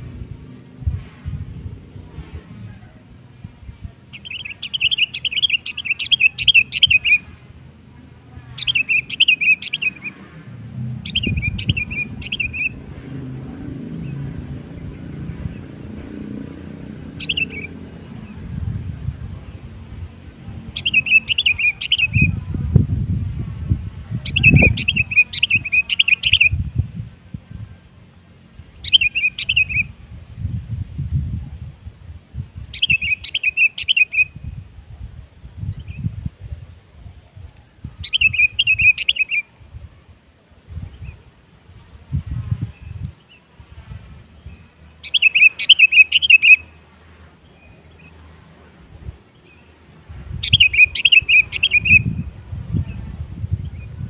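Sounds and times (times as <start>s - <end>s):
low rumble: 0.0s - 4.0s, 22.0s - 25.6s
bird song rapid repeated notes: 4.2s - 7.3s, 8.6s - 10.2s, 11.0s - 12.8s, 17.1s - 17.8s, 20.8s - 22.3s, 24.3s - 26.6s, 32.7s - 34.3s, 44.8s - 46.7s, 50.4s - 52.1s.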